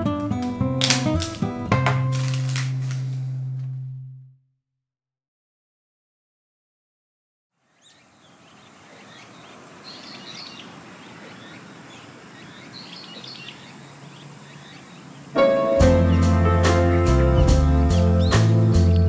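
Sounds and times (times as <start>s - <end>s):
steady hiss: 7.6s - 17.1s
birds chirping: 7.6s - 19.0s
piano music: 15.3s - 19.0s.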